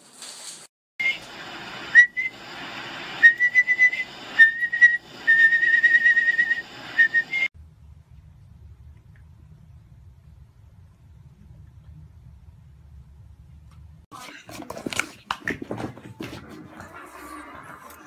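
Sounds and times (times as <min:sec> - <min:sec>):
person whistling high notes: 0:01.9 - 0:02.4, 0:03.2 - 0:07.5.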